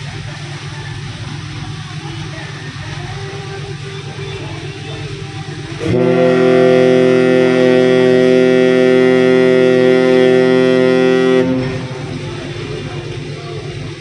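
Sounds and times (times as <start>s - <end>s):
ship's horn blast: 4.7s - 14.0s.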